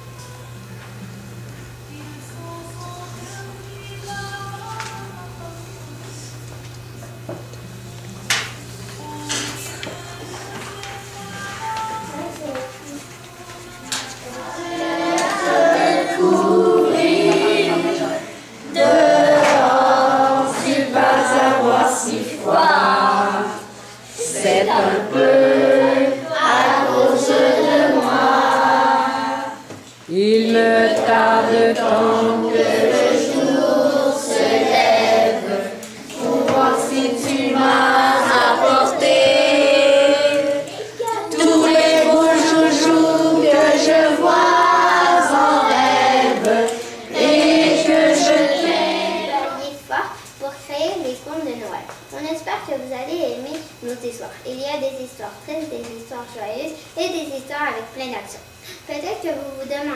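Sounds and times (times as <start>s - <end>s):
children's choir singing: 13.3s - 49.6s.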